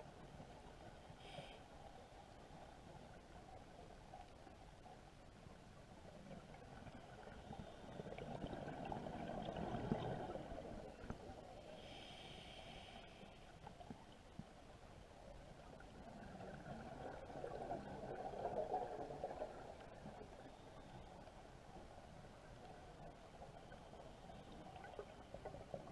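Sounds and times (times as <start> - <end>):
hissing regulator inhale: 11.6 - 13.5.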